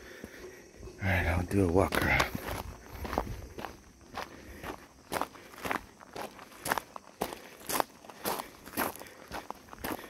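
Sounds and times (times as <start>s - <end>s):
footsteps on gravel: 1.1s - 10.0s.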